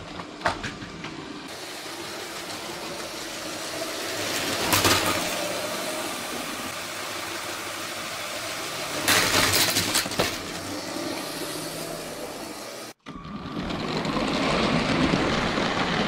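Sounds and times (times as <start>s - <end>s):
toy train motors running: 1.5s - 16.0s
toy trains crashing: 1.8s - 11.1s
plastic wheels rattling on track: 3.6s - 5.7s, 8.8s - 10.7s, 13.1s - 16.0s.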